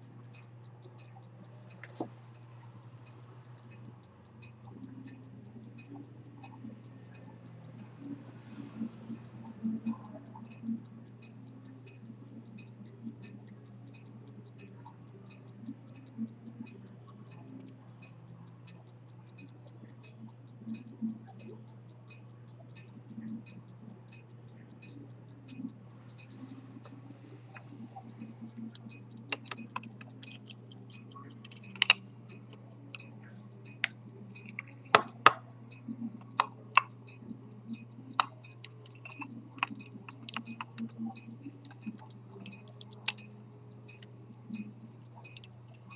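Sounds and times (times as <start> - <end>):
pocket watch ticking: 0.0 - 45.9
watch handling clicks and knocks: 26.3 - 33.1, 33.7 - 35.5, 37.6 - 43.4.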